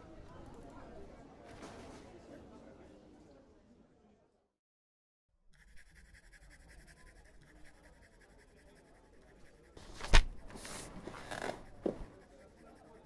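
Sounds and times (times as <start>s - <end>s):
brief rustle: 9.8s - 12.0s.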